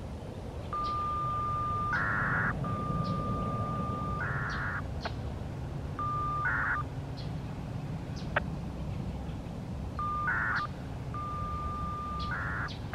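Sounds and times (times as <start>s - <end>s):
low steady hum: 0.0s - 12.9s
high radio beep: 0.7s - 4.8s, 6.0s - 6.8s, 10.0s - 12.7s.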